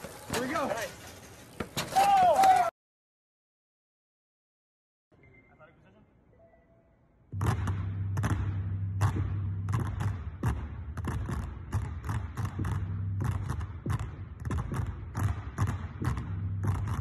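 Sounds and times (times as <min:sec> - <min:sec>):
basketballs dribbling on hardwood: 0:07.4 - 0:17.0.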